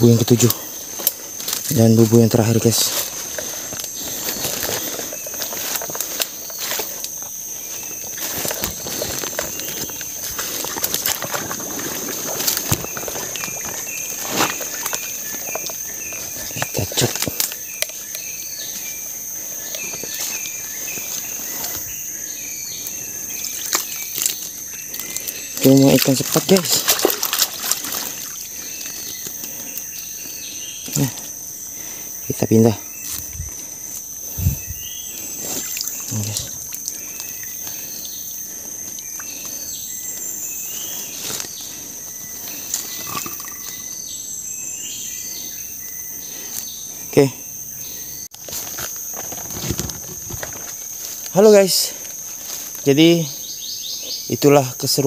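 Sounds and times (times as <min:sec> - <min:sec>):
insects droning: 0:00.0 - 0:55.0.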